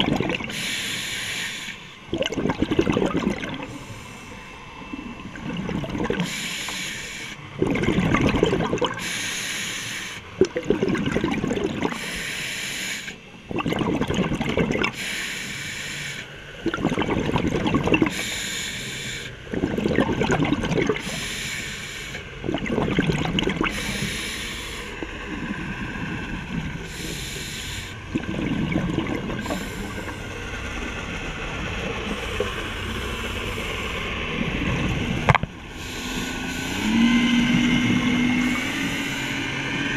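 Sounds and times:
exhaled bubbles underwater: 0.0s - 15.2s, 15.9s - 39.9s
diver breathing through regulator: 0.4s - 1.9s, 3.0s - 4.5s, 6.0s - 7.4s, 9.0s - 10.3s, 11.8s - 13.2s, 14.9s - 16.3s, 18.0s - 19.5s, 20.9s - 22.4s, 23.6s - 25.6s, 26.7s - 28.3s, 29.2s - 30.4s, 32.0s - 34.5s, 35.7s - 39.9s.

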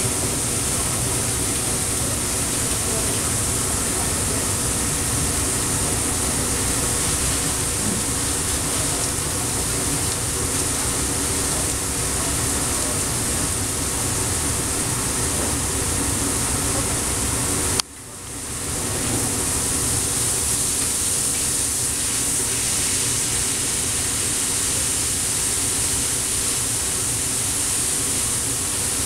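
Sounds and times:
low mechanical drone: 0.0s - 22.6s
food sizzling on a griddle: 0.3s - 15.8s, 18.6s - 29.0s.

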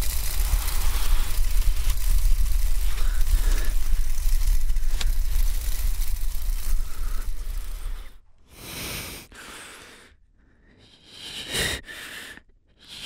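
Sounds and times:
low rumbling drone: 0.0s - 8.4s
man breathing heavily: 0.2s - 5.8s, 6.5s - 13.0s.

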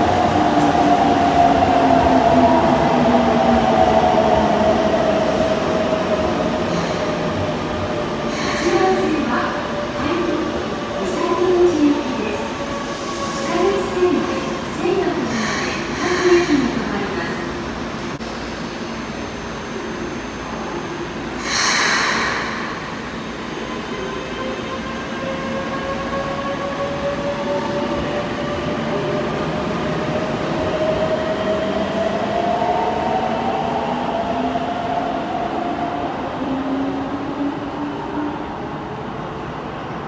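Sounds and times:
loud hiss: 21.4s - 23.1s.

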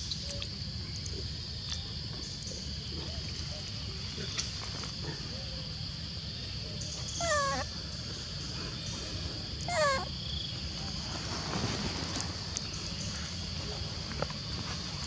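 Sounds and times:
monkey high calls: 7.1s - 7.7s, 9.6s - 10.1s.

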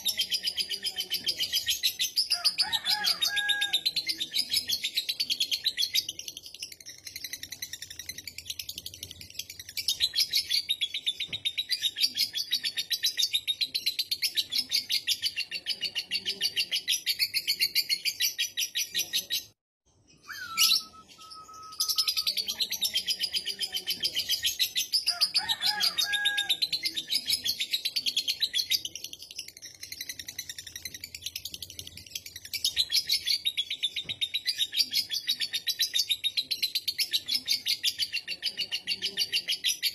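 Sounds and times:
bird held tone: 20.1s - 22.6s.

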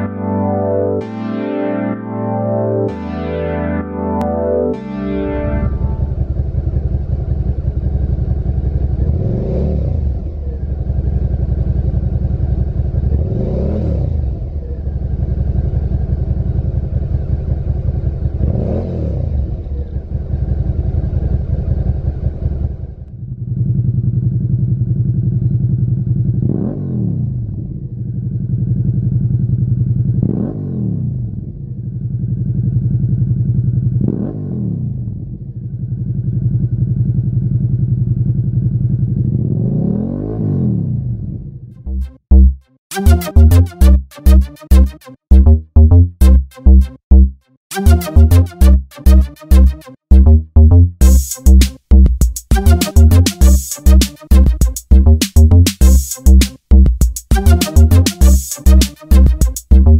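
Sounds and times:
motorcycle engine idling and revving: 5.9s - 42.6s, 50.1s - 53.1s, 54.4s - 59.9s.

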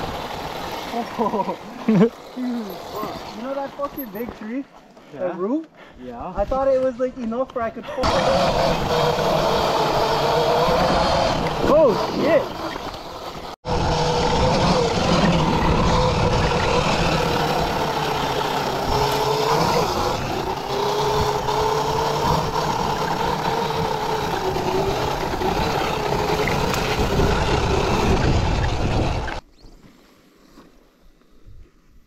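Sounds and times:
electric dirt bike motor whine: 0.0s - 3.6s, 8.0s - 29.4s.

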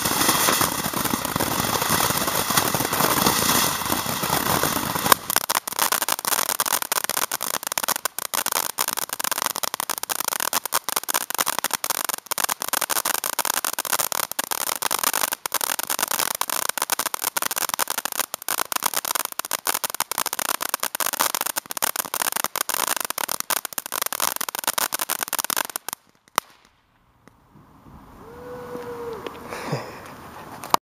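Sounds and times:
firework fountain hissing and crackling: 0.0s - 26.8s, 27.6s - 30.8s.

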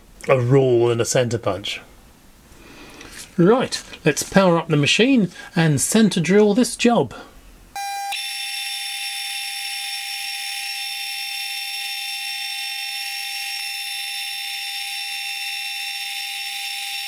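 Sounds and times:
milling machine high whine: 7.8s - 17.0s.

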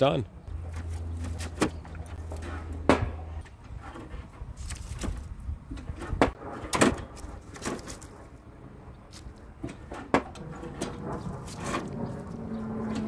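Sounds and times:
metal knocks and clatter: 9.6s - 12.2s.

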